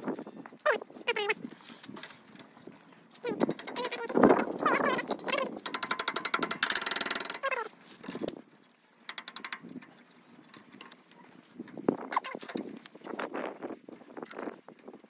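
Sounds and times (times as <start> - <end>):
ratchet wrench clicking: 5.1 - 8.2, 9.1 - 9.6.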